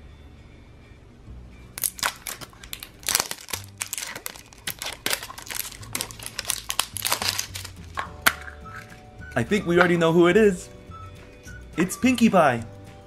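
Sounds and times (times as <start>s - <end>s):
plastic packaging crinkling: 1.8s - 9.0s.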